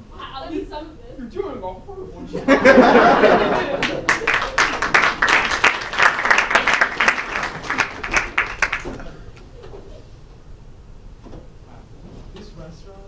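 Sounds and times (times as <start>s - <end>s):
audience applauding: 3.3s - 9.4s.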